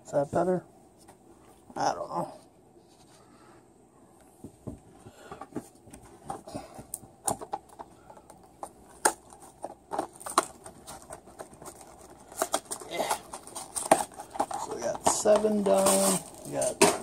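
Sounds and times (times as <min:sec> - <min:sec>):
rustling: 0:04.3 - 0:17.0.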